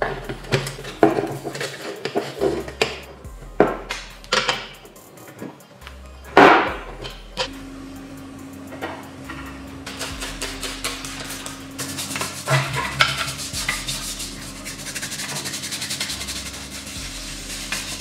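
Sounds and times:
scraping strokes on hard surface: 0.0 - 3.1, 9.4 - 18.0.

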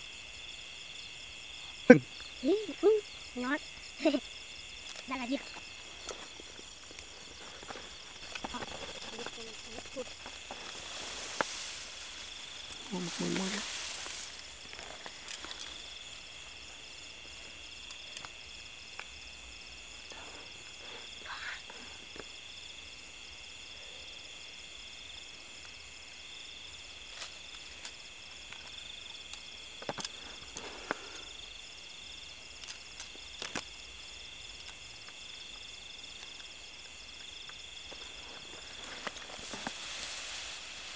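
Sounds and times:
crickets trilling: 0.0 - 40.9
short rustles: 7.1 - 15.9, 37.9 - 40.9.

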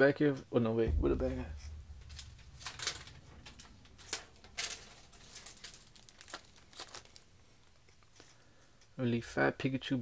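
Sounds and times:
packaging crinkling: 2.1 - 8.2.

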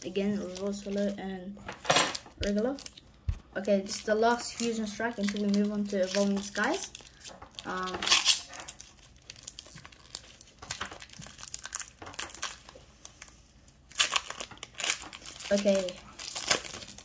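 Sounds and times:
foil wrapper tearing and crinkling: 2.4 - 3.0, 3.8 - 17.0.

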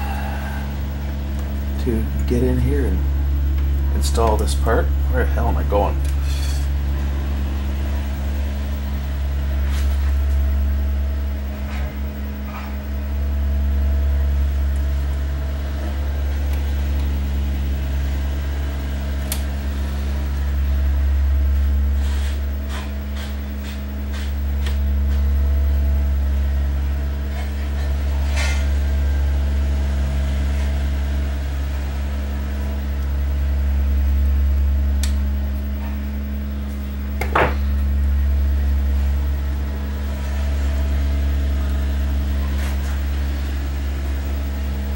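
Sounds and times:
low electrical hum: 0.0 - 44.9.

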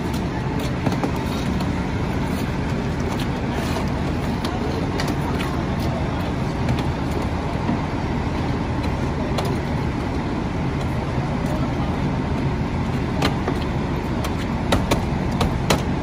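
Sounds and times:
fire engine idling rumble: 0.0 - 16.0
sharp knocks and clicks: 13.2 - 15.9.

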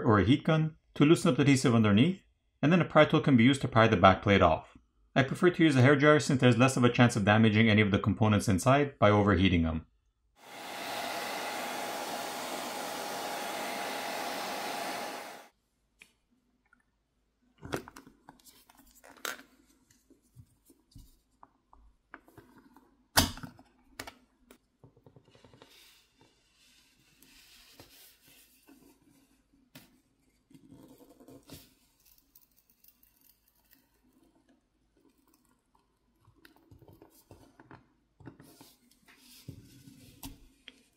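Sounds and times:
hair dryer blowing: 10.4 - 15.5.

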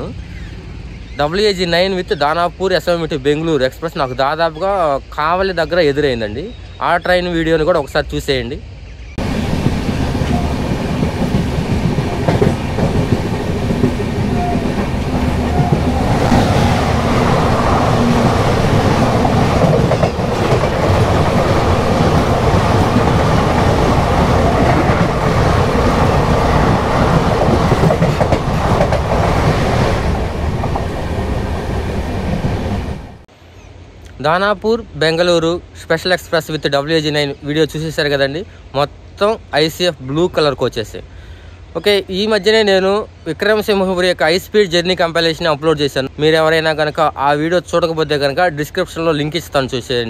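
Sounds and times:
train wheels on rail: 9.2 - 33.2
passing train rushing: 9.2 - 34.0.

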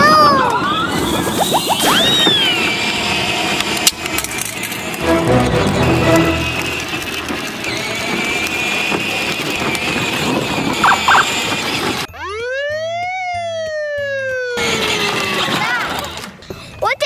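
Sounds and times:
electric ride-on car whine: 0.0 - 5.0, 6.3 - 12.1, 14.6 - 16.4
police siren sound effect: 10.8 - 11.3, 12.2 - 14.6.

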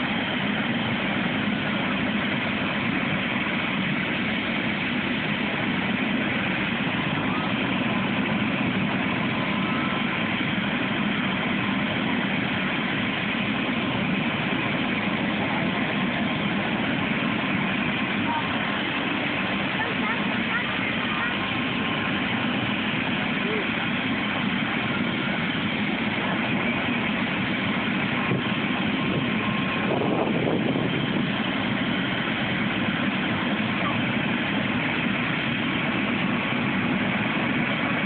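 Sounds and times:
faint steady whine: 0.0 - 38.0
helicopter idling drone: 0.0 - 38.0.

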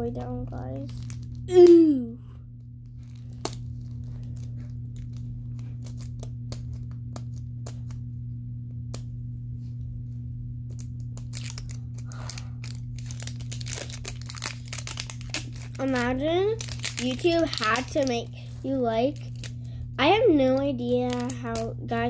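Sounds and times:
low hum: 0.0 - 22.0
plastic wrapping crinkling: 0.1 - 2.0, 2.8 - 8.0, 10.7 - 19.7, 20.8 - 21.7.

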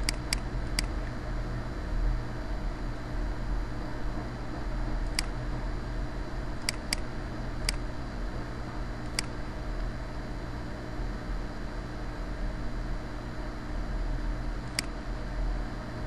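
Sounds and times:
low hum and hiss: 0.0 - 16.0
computer mouse button clicking: 6.6 - 7.0, 14.7 - 14.9.

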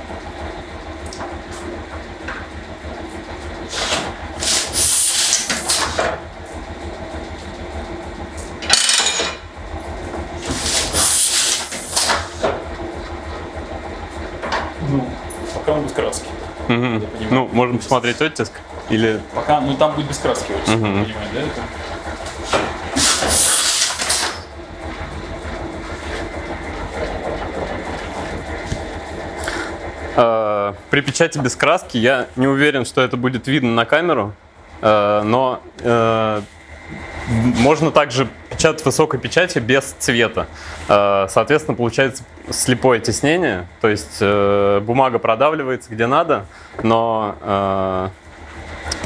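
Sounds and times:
loud hiss: 4.4 - 5.9, 10.5 - 12.3, 23.0 - 24.4
printing press clattering: 17.3 - 30.2.

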